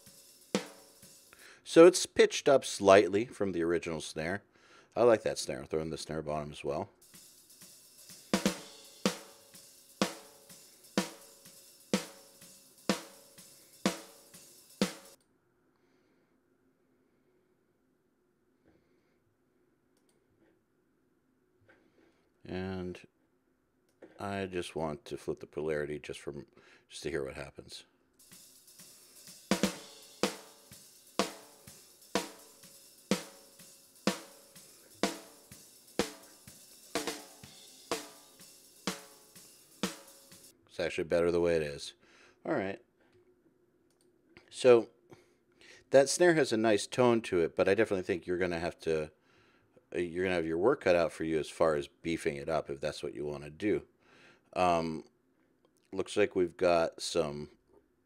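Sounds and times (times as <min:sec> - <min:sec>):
faint drum kit bleed: 0:00.0 - 0:02.2, 0:06.0 - 0:15.2, 0:28.2 - 0:41.9.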